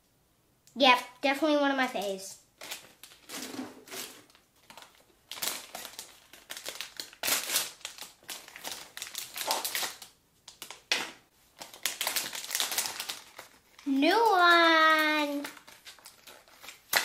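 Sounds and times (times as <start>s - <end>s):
plastic packaging crinkling: 1.9s - 17.0s
pouch tearing open: 5.3s - 10.1s.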